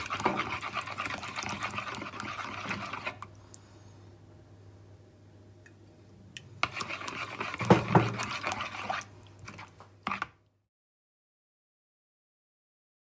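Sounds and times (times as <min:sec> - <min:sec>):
spoon stirring wet salad: 0:00.0 - 0:03.3, 0:06.4 - 0:10.4.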